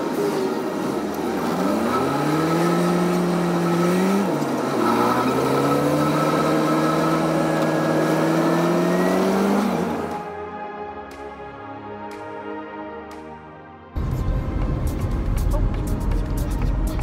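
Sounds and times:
car engine accelerating: 0:00.0 - 0:10.4.

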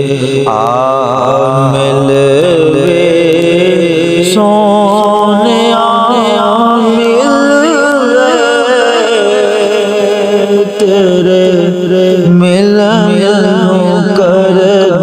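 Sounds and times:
man singing wordless melisma: 0:00.0 - 0:15.0.

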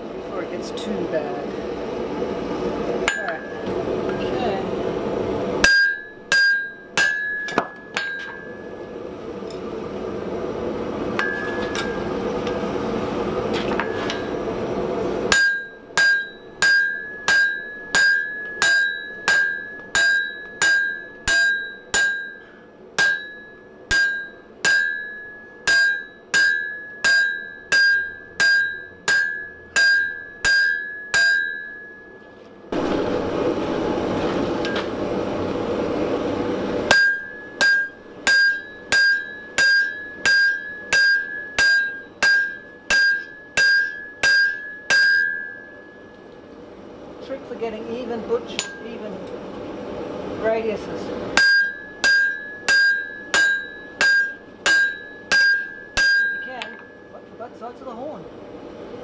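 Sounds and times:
hammer striking ringing anvil: 0:03.0 - 0:03.7, 0:05.6 - 0:08.8, 0:11.2 - 0:12.1, 0:15.3 - 0:32.4, 0:36.9 - 0:46.4, 0:48.5 - 0:49.0, 0:51.4 - 0:57.4.

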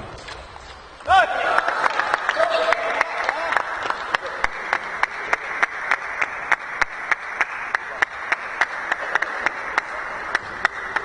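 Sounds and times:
rhythmic unison clapping: 0:01.2 - 0:11.0
crowd hubbub: 0:02.3 - 0:11.0.

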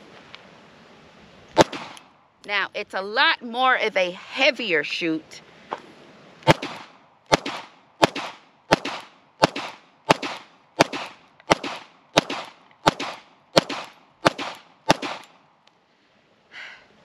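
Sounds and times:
pistol shots with echo: 0:01.6 - 0:02.0, 0:06.5 - 0:15.3.

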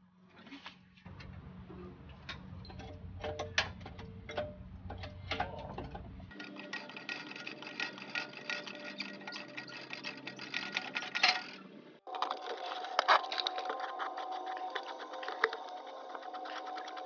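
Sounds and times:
low hum: 0:01.1 - 0:08.2
floor jack metal clanks: 0:02.1 - 0:11.6.

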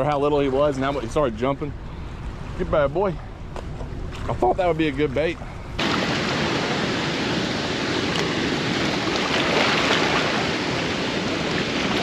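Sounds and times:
floodwater rushing over rocks: 0:05.8 - 0:12.0.

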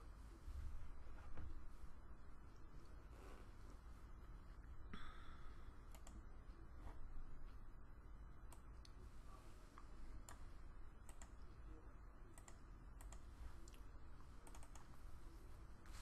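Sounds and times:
computer mouse clicks: 0:05.9 - 0:06.3, 0:09.8 - 0:11.6, 0:12.3 - 0:15.0.

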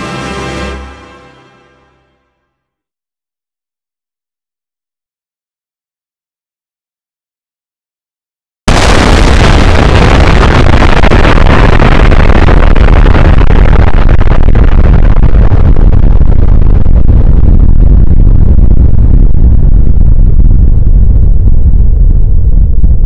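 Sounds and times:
explosion blast: 0:08.7 - 0:23.0.

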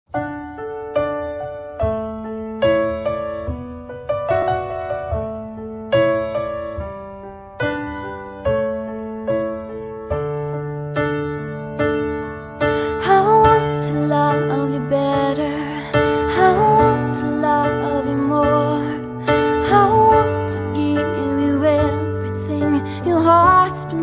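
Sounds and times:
slow solo piano: 0:00.1 - 0:24.0.

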